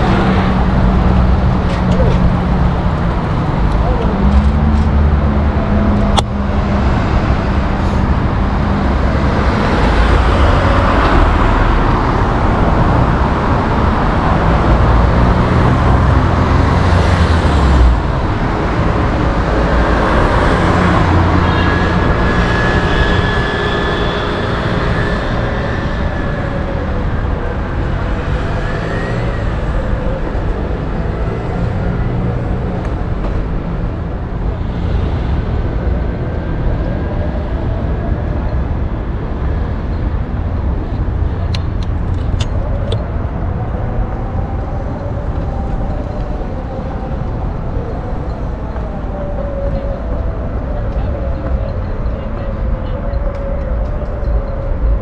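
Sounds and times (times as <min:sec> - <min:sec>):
city street traffic: 0:00.0 - 0:55.0
heavy low rumble: 0:00.0 - 0:55.0.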